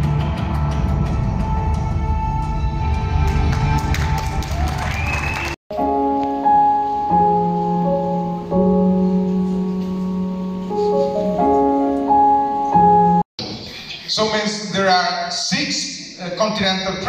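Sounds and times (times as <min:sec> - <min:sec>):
dense dramatic music: 0:00.0 - 0:04.1
slow held keyboard chords: 0:05.7 - 0:13.2.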